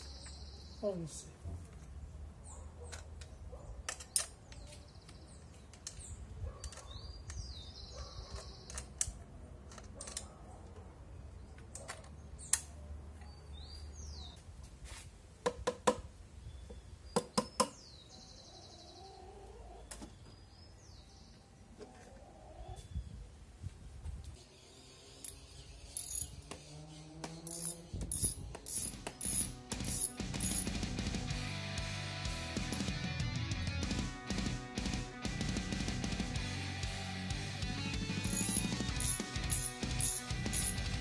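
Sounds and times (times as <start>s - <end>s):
birds chirping: 0.0s - 1.4s, 2.0s - 9.3s, 24.3s - 30.7s, 37.7s - 41.0s
wrench metallic clicks: 26.0s - 26.6s, 27.5s - 30.8s, 38.2s - 40.9s.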